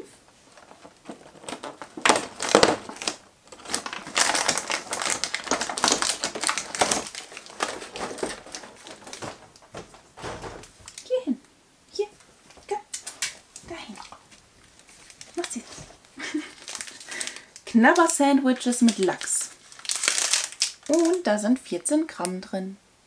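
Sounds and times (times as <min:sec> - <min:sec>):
packaging crinkling: 0:00.1 - 0:11.2, 0:12.2 - 0:21.4
cardboard tearing: 0:00.4 - 0:11.0, 0:13.0 - 0:18.1, 0:18.8 - 0:21.2.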